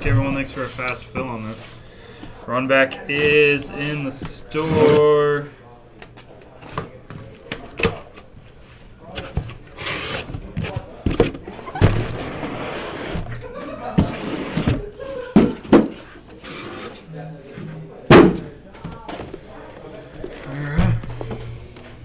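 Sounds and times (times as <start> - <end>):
cardboard rasping scrape: 9.7 - 10.8, 12.0 - 13.3, 16.3 - 17.1
cardboard boxes rubbing and sliding: 12.0 - 13.4, 16.3 - 17.1.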